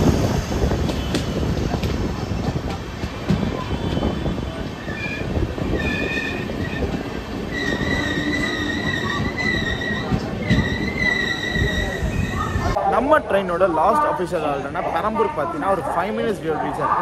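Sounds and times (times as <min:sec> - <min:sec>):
train wheels rumbling: 0:00.0 - 0:12.8.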